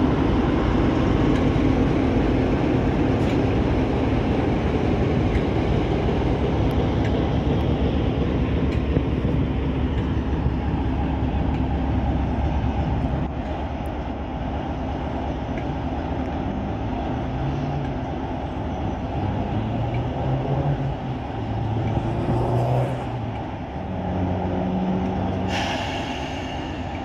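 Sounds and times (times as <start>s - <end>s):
diesel locomotive engine idling: 0.0s - 27.0s
air hiss: 25.5s - 27.0s.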